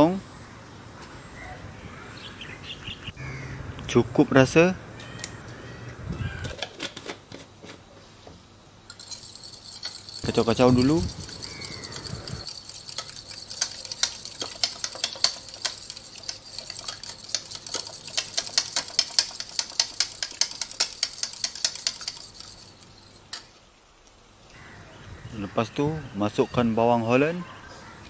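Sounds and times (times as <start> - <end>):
fork whisking eggs in bowl: 8.9 - 23.2.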